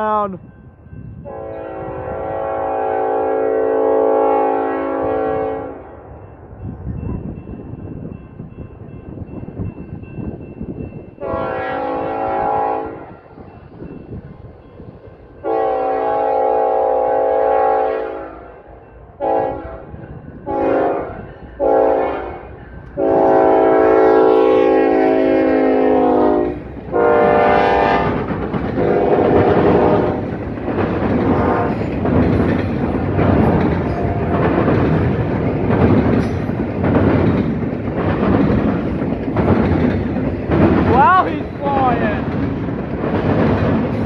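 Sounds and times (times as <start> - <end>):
train rumble: 0.0 - 44.0
locomotive horn blasts: 1.2 - 5.9, 11.2 - 13.1, 15.4 - 18.6, 19.2 - 28.2, 28.8 - 30.3, 31.4 - 31.9
train wheel clatter: 24.9 - 44.0.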